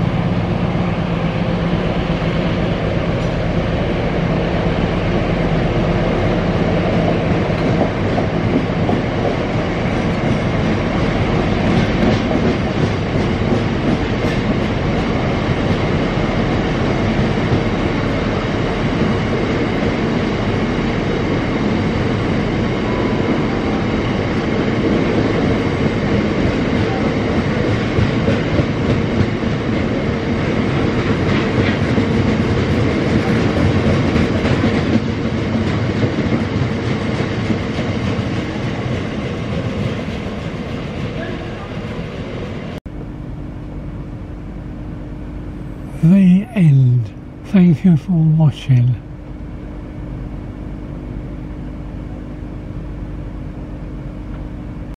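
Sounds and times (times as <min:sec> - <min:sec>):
freight train wheels clattering on rails: 0:01.7 - 0:22.6, 0:24.5 - 0:42.8.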